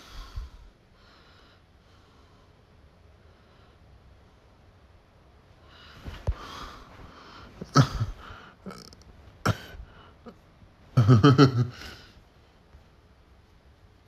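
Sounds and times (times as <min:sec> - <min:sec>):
person making vocal sounds: 0:07.6 - 0:10.4.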